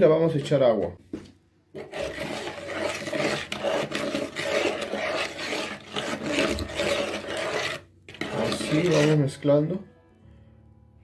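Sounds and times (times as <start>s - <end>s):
spoon stirring sugar in bowl: 1.8s - 9.4s.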